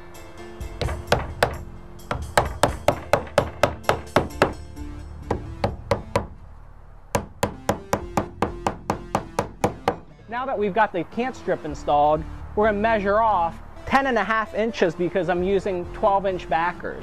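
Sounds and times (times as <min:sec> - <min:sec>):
hammer striking nails into wood: 0:00.8 - 0:04.6, 0:05.3 - 0:06.4, 0:07.2 - 0:10.1.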